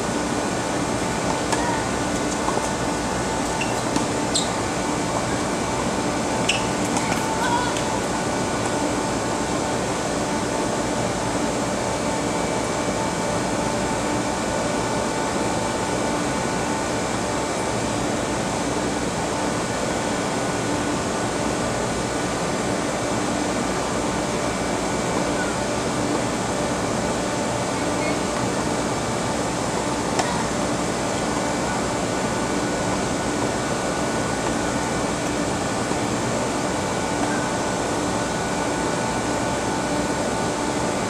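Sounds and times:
steady mechanical hum: 0:00.0 - 0:41.0.

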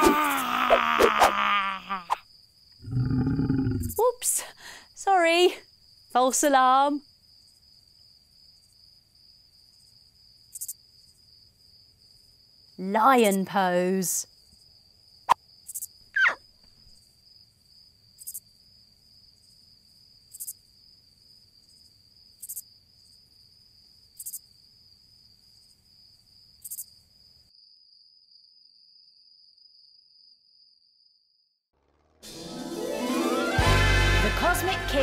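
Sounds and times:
crickets chirping: 0:01.6 - 0:31.4.

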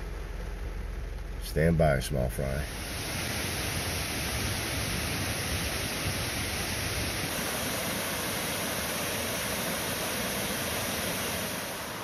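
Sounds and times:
creek water rushing over rocks: 0:02.7 - 0:12.0.

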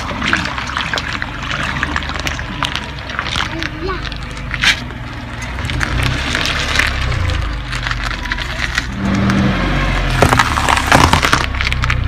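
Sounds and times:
tyre crushing small objects: 0:00.0 - 0:09.4, 0:10.0 - 0:12.0
car engine hum: 0:00.0 - 0:12.0.

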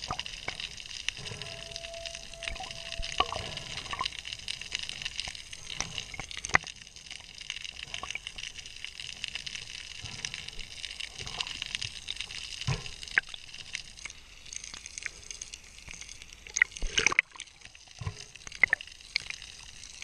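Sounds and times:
crackling clicks: 0:00.0 - 0:20.0
steady underwater hiss: 0:00.0 - 0:20.0.

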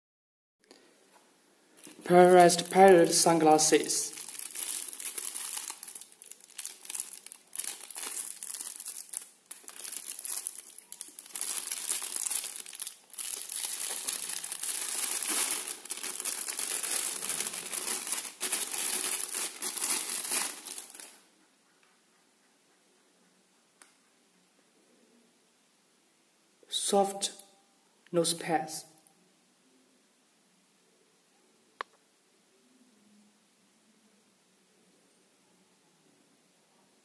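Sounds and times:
plastic wrapping crinkling: 0:01.8 - 0:21.2.

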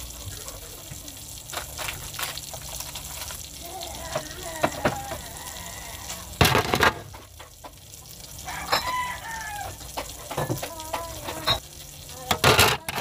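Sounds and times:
plastic ice trays clattering: 0:04.1 - 0:05.3, 0:06.3 - 0:07.3, 0:12.2 - 0:13.0.

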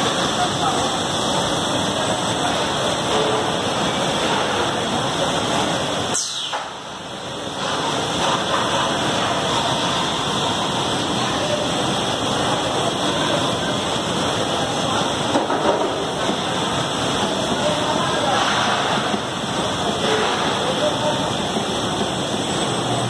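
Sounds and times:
welding line machine hiss: 0:00.0 - 0:15.3.

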